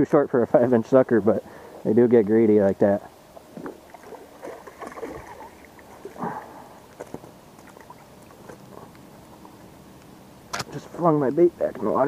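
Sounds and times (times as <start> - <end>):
fish splashing in water: 3.5 - 9.8.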